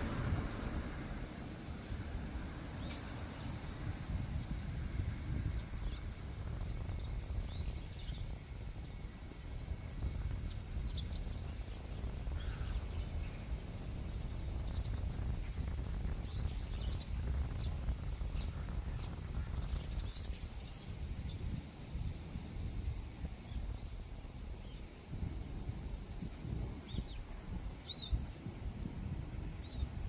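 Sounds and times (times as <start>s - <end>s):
low outdoor rumble: 0.0s - 30.0s
small birds chirping: 5.4s - 15.3s, 16.1s - 21.6s, 25.6s - 28.3s, 29.0s - 30.0s.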